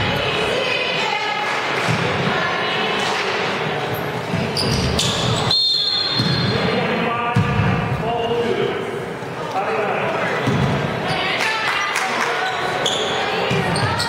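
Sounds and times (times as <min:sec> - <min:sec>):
crowd chatter: 0:00.0 - 0:14.0
referee's whistle blast: 0:05.4 - 0:06.6.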